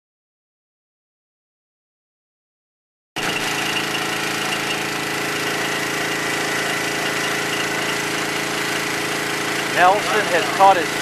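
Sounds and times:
boat engine humming: 3.2 - 11.0.

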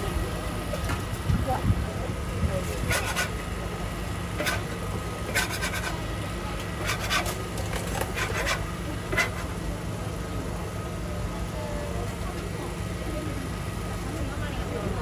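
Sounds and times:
steady low hum: 0.0 - 15.0
metal spatulas scraping griddle: 2.8 - 3.4, 4.4 - 4.7, 5.3 - 6.0, 6.8 - 9.5.

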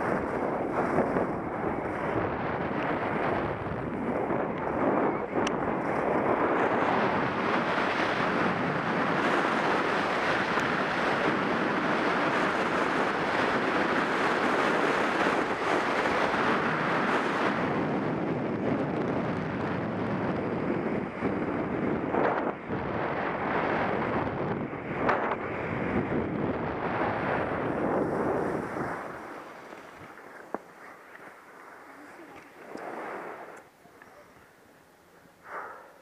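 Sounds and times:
skis scraping on snow: 0.0 - 2.2, 26.9 - 33.6
wind rushing over microphone: 0.0 - 36.0.

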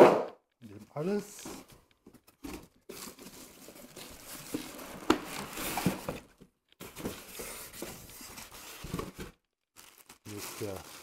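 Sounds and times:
sharp knock: 0.0 - 0.4
packaging rustling and scraping: 1.0 - 11.0.

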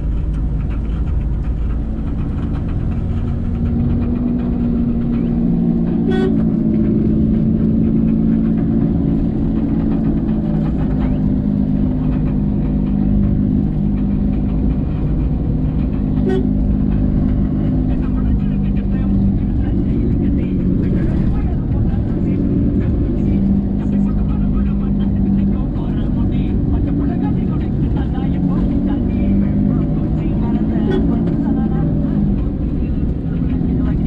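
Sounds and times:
car engine and tyre noise: 0.0 - 34.0.

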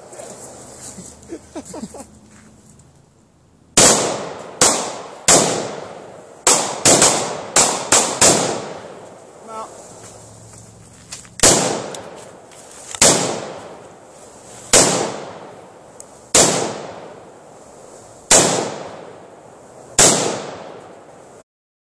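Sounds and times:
gunshots with echo: 3.8 - 9.0, 11.4 - 12.1, 13.0 - 13.8, 14.7 - 15.5, 16.3 - 17.2, 18.3 - 19.1, 20.0 - 20.8.

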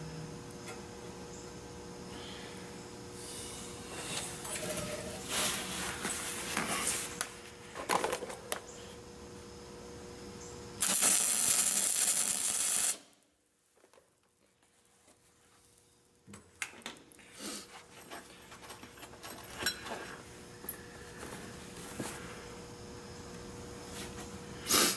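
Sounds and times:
welder arc hissing: 10.8 - 13.3.

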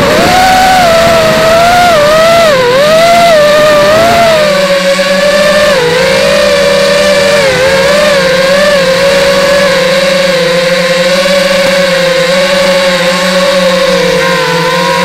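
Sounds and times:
model aircraft motor whine: 0.0 - 15.0.

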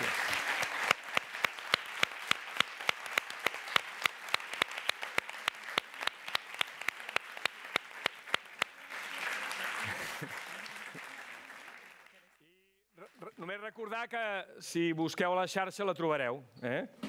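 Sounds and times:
audience applauding: 0.0 - 12.4
close hand claps: 0.0 - 12.4.

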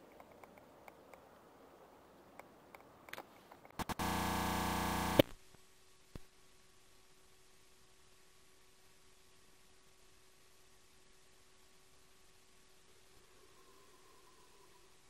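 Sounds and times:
faint clicks: 0.0 - 1.5, 2.2 - 4.2
faint steady hum: 0.0 - 15.0
loud electronic buzz: 3.8 - 5.3.

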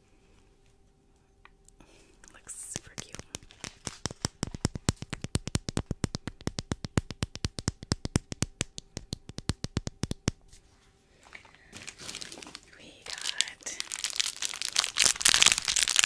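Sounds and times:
packaging rustling: 2.8 - 4.9, 11.3 - 16.0
tapping on plastic bottle: 2.8 - 10.3.

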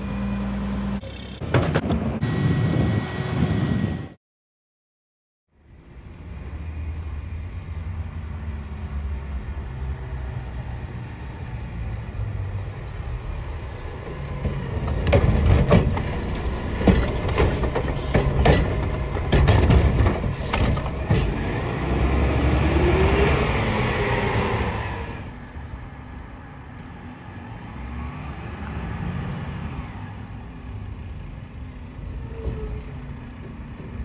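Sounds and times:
bangs and knocks of bin lifting: 16.8 - 21.4.

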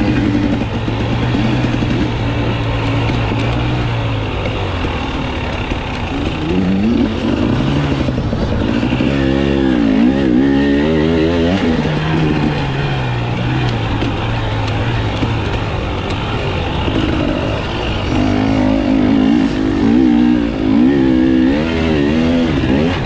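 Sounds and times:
dirt bike engine revving: 0.0 - 23.0.

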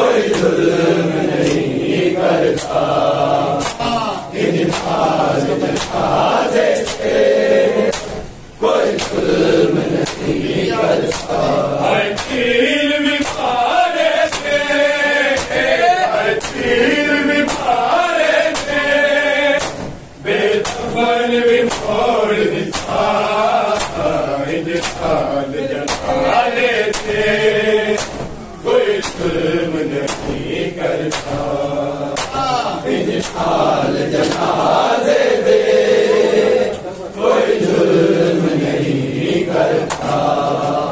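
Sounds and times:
men chanting in unison: 0.0 - 40.9
hand slaps on bare chests: 0.3 - 0.6, 1.4 - 1.8, 2.5 - 2.9, 3.6 - 4.0, 4.6 - 6.1, 6.8 - 7.1, 7.9 - 8.2, 8.9 - 9.3, 9.9 - 10.4, 11.1 - 11.5, 12.1 - 12.5, 13.2 - 13.5, 14.2 - 18.9, 19.6 - 20.0, 20.6 - 21.0, 21.6 - 22.0, 22.7 - 25.2, 25.8 - 26.2, 26.9 - 27.2, 28.0 - 28.4, 29.0 - 29.3, 30.0 - 30.4, 31.0 - 31.5, 32.2 - 32.5, 33.1 - 33.6, 34.2 - 34.6, 39.9 - 40.2.

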